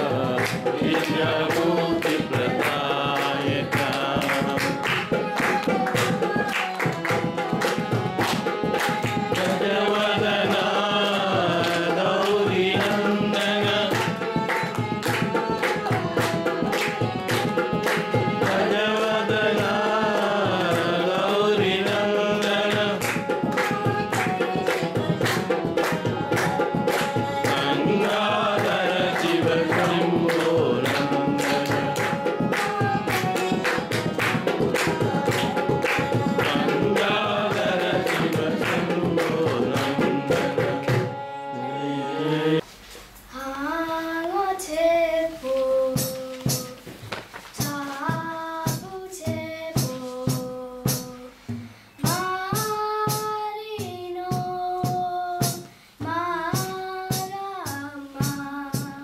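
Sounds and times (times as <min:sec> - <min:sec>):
girl singing alone: 0:00.0 - 0:40.3, 0:43.3 - 0:47.0, 0:47.6 - 0:59.0
tabla accompaniment: 0:00.0 - 0:42.6, 0:45.6 - 0:59.0
voices singing: 0:00.0 - 0:42.7.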